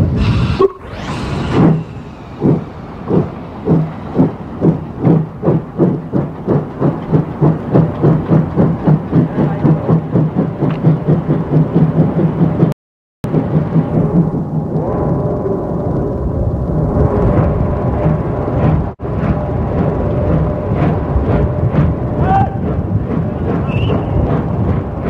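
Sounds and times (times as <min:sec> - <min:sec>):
steam locomotive chuffing: 0:00.0 - 0:12.7, 0:17.8 - 0:25.0.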